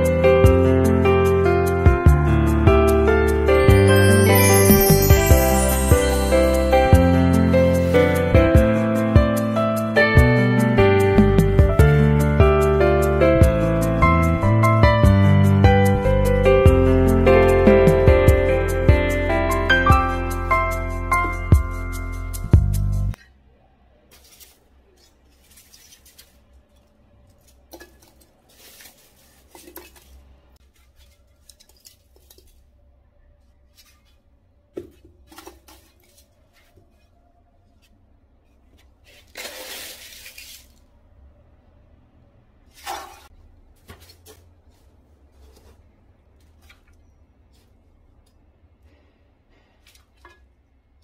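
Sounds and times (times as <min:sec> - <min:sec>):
scraping rustle: 0:24.1 - 0:32.7.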